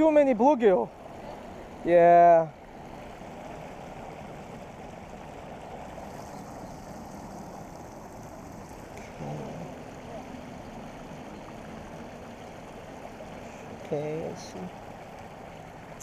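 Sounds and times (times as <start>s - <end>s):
water pouring over a weir: 4.0s - 16.0s.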